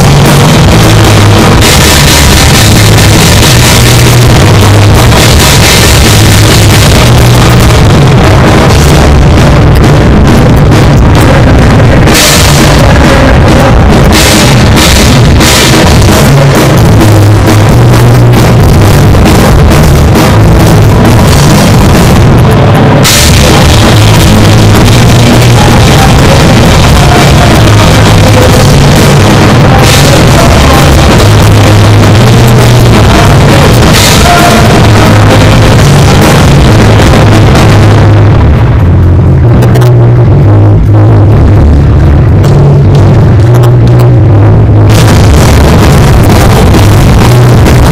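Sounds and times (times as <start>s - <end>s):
cymbal crash: 0.0s - 11.3s
drums and cymbals: 0.0s - 47.9s
punk rock band playing live: 0.0s - 47.9s.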